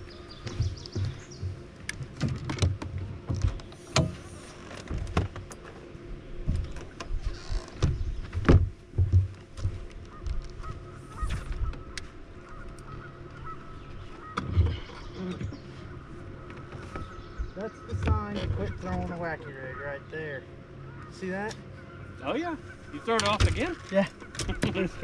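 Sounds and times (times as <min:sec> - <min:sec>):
knocks and thumps on boat deck: 0:00.4 - 0:05.7, 0:06.4 - 0:10.5, 0:16.5 - 0:19.2, 0:23.2 - 0:25.0
honking bird calls: 0:10.0 - 0:25.0.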